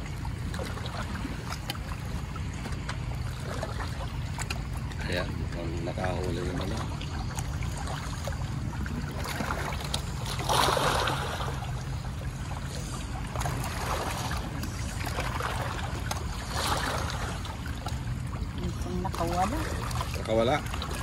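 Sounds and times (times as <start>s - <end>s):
steady low rumble: 0.0s - 21.0s
water washing in surges: 0.0s - 21.0s.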